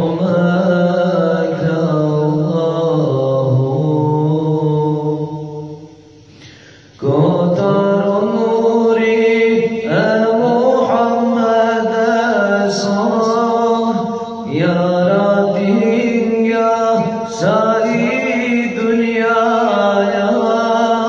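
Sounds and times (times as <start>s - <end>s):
man singing into a microphone: 0.0s - 21.0s.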